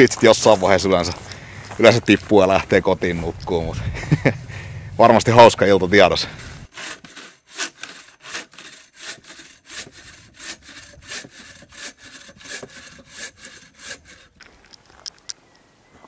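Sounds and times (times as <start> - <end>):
bow saw cutting log: 6.4 - 14.5.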